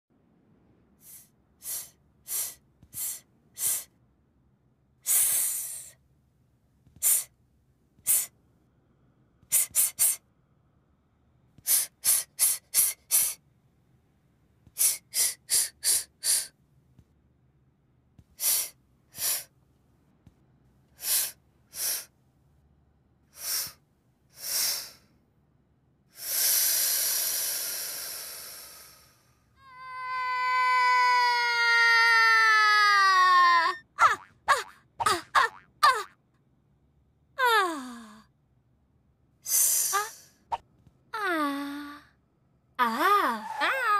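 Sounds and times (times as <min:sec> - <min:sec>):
cartoon voice hissing: 0:39.5 - 0:40.2.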